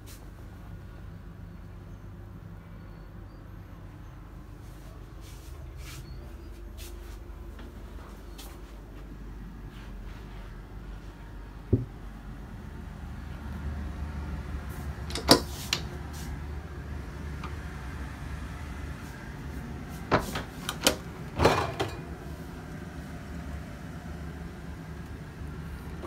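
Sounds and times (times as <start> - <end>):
steady low hum: 0.0 - 26.0
cabinet doors opening and closing: 15.1 - 15.9, 20.0 - 22.1.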